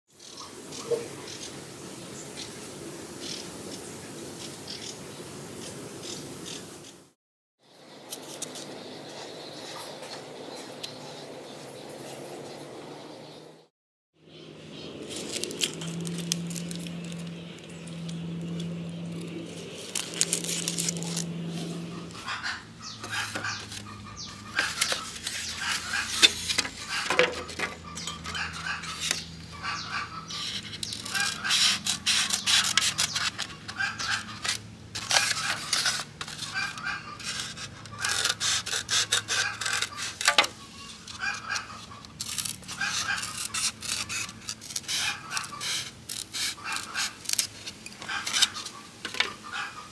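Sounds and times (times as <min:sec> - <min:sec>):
scissors cutting foam: 0:30.4 - 0:48.6.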